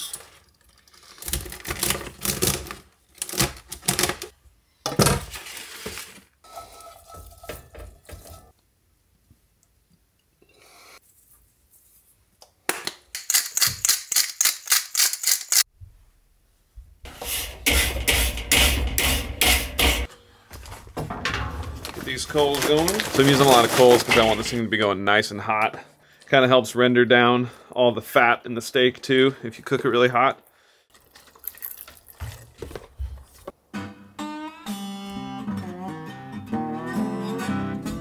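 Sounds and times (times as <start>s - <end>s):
charcoal briquettes clattering into grill: 17.4s - 24.6s.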